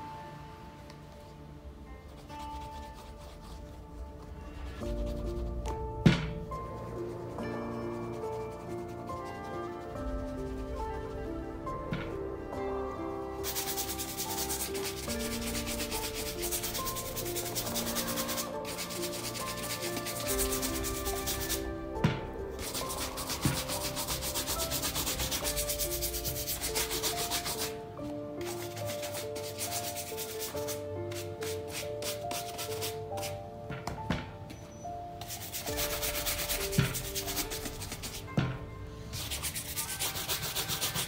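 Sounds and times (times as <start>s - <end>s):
shoe brush rubbing leather: 13.4s - 21.7s, 22.6s - 27.8s, 28.4s - 33.4s, 35.2s - 38.4s, 39.2s - 41.0s.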